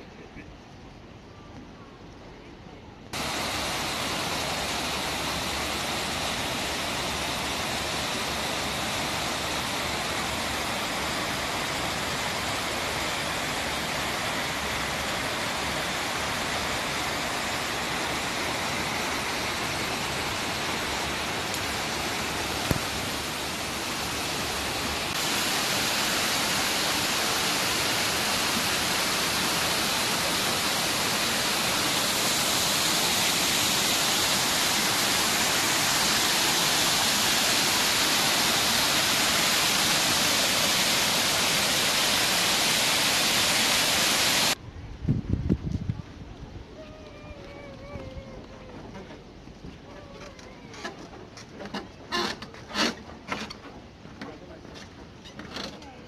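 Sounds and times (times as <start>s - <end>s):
waterfall rushing into pool: 3.1s - 44.6s.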